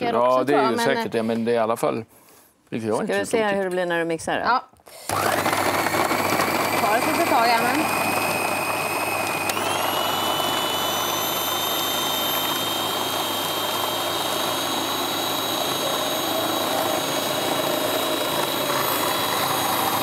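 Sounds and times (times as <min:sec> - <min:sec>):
food processor motor whining: 0:04.9 - 0:20.0.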